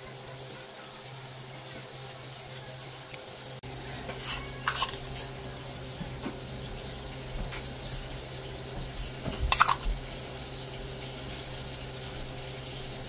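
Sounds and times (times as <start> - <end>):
dishes clattering: 3.9 - 5.3, 9.2 - 10.0
utensils tapping: 3.9 - 5.3, 9.0 - 9.9.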